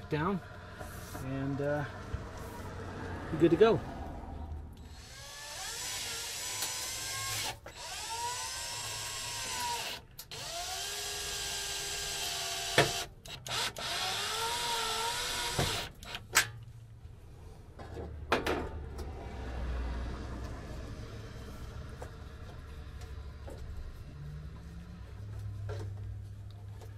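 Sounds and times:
cordless drill motor whine: 4.8s - 15.9s
drill clicks: 4.8s - 16.5s.

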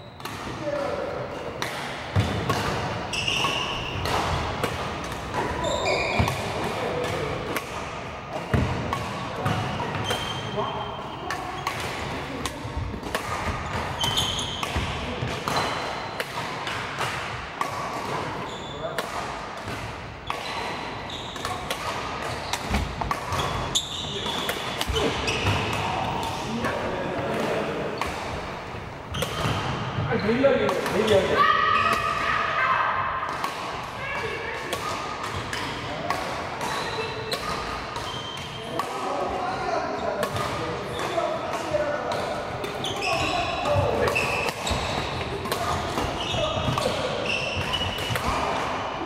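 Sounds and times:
sneakers squeaking on wooden floor: 0.0s - 0.5s, 2.2s - 6.7s, 8.4s - 12.0s, 12.7s - 16.2s, 18.0s - 19.0s, 20.2s - 26.4s, 36.6s - 38.8s, 42.1s - 48.4s
racket striking shuttlecock: 1.5s - 10.3s, 11.3s - 28.5s, 43.6s - 48.8s
shoes squeaking on wooden floor: 3.1s - 4.0s, 5.4s - 6.4s, 14.0s - 14.6s, 20.4s - 21.6s, 22.4s - 25.6s, 42.8s - 45.1s, 46.1s - 48.0s.

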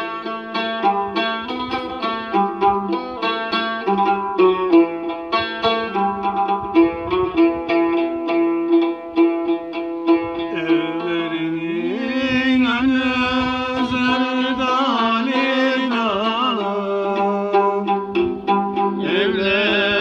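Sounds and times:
plucked lute: 0.0s - 20.0s
man singing folk song: 10.5s - 18.1s, 19.0s - 20.0s.

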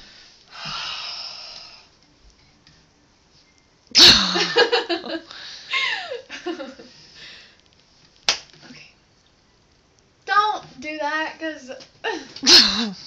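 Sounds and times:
woman laughing: 4.2s - 6.9s
sharp smack: 8.3s - 8.5s.

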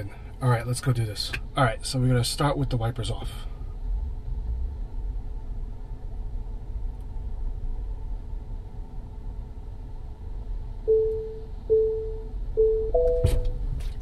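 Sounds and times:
car rumbling low: 0.0s - 14.0s
park-assist beep: 10.9s - 13.6s.

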